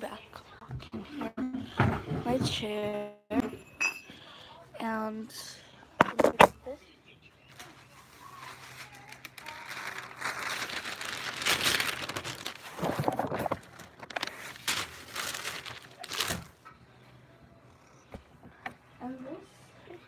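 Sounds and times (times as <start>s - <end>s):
rustling and crinkling: 7.5s - 16.7s.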